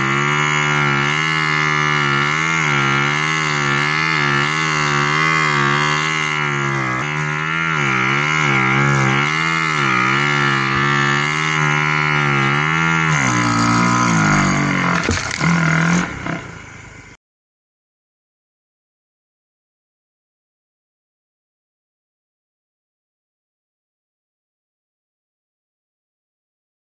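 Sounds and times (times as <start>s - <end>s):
snow bike engine under throttle: 0.0s - 17.2s.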